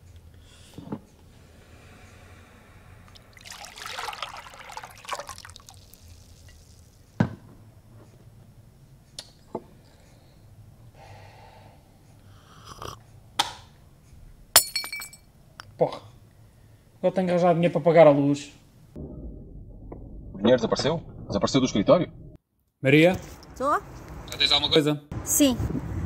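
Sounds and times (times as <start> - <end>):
liquid pouring into mug: 3.1 - 7.0.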